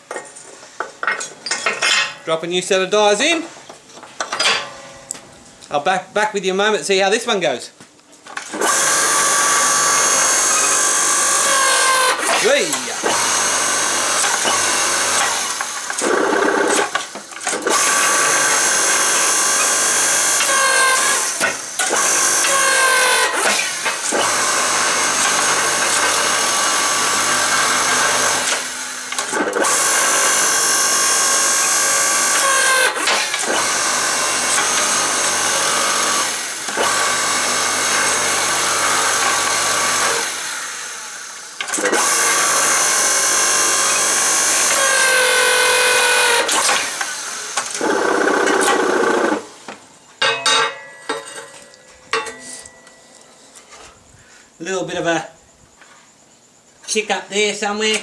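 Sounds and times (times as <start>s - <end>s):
hydraulic pump motor whining: 8.4s - 49.6s.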